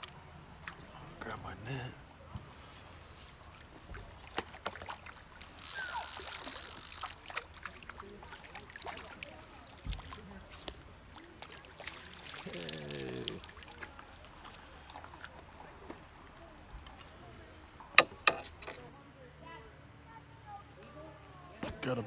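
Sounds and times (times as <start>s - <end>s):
water splashing: 0.0s - 1.0s, 3.3s - 18.5s.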